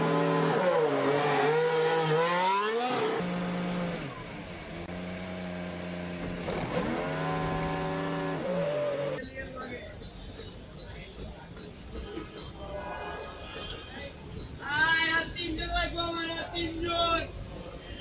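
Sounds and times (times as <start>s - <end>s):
racing car engine buzzing: 0.0s - 9.2s.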